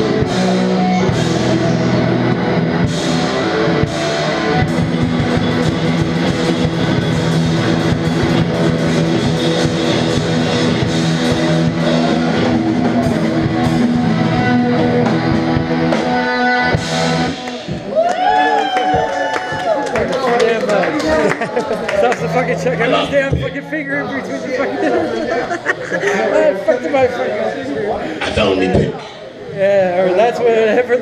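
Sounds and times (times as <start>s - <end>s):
electric guitars sustained chords: 0.0s - 17.9s
pounding drum kit: 0.0s - 19.8s.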